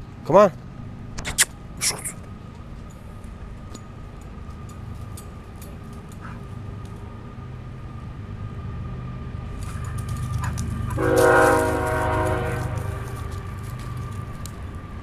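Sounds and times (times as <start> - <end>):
low train rumble: 0.0 - 15.0
train horn blast: 10.9 - 13.4.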